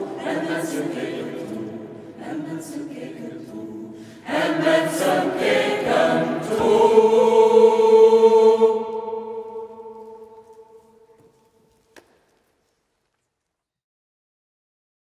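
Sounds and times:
mixed choir singing a cappella: 0:00.0 - 0:11.0.

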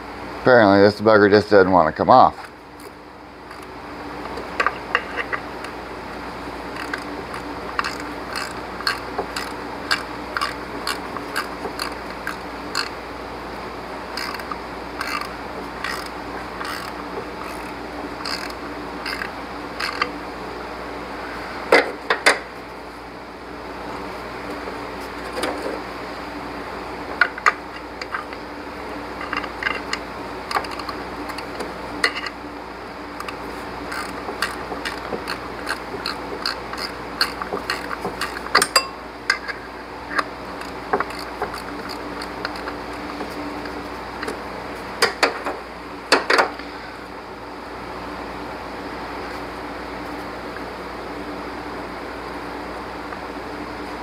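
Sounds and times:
hand ratchet clicking: 0:06.7 - 0:12.9, 0:14.1 - 0:20.1, 0:33.2 - 0:43.1.

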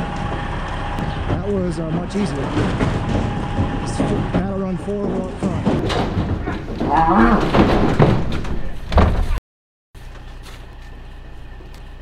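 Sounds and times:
cattle banging in metal trailer: 0:00.0 - 0:09.4.

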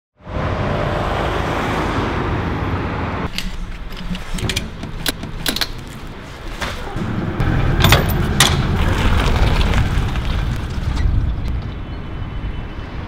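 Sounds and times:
ratchet strap clicking: 0:03.3 - 0:06.0.

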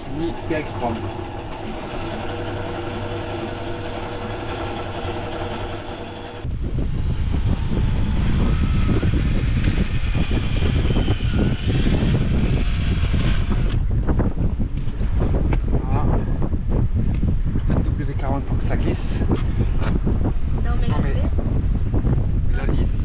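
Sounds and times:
sewing machine motor hum: 0:00.0 - 0:06.5
wind buffeting microphone: 0:06.4 - 0:23.0
cordless drill whirring: 0:07.8 - 0:13.8.

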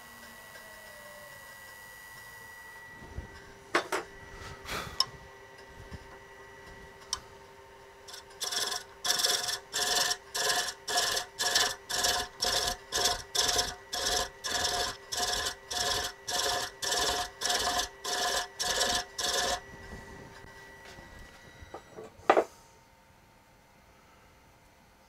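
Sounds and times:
lathe humming: 0:00.0 - 0:21.9
thread chaser scraping wood: 0:08.1 - 0:19.7.

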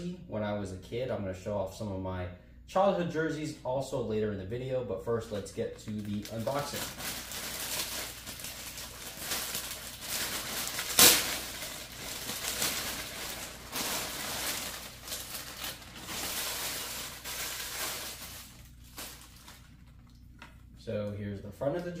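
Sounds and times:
plastic bag crinkling: 0:05.2 - 0:20.7
sharp plastic crackle: 0:05.3 - 0:20.7.

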